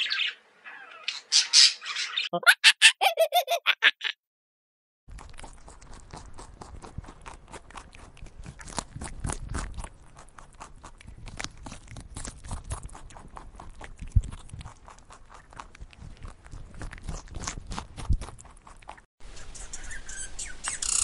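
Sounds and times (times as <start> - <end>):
animal crunching food: 5.1 - 20.0.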